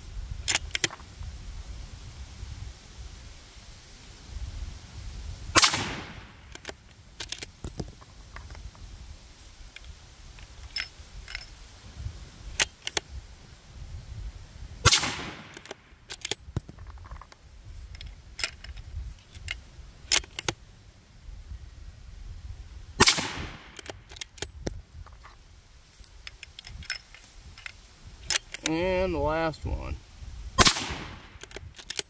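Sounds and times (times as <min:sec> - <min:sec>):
rifle shots with echo: 0:05.6 - 0:06.4, 0:14.8 - 0:15.6, 0:23.0 - 0:23.8, 0:30.6 - 0:31.4.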